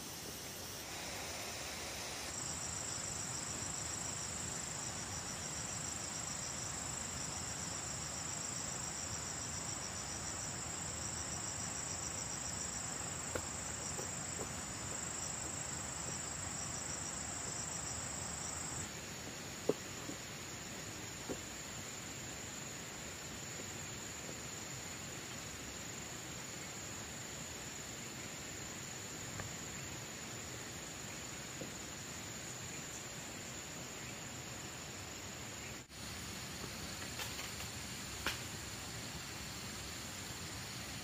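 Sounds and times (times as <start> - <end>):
insects trilling: 0.0 - 41.0.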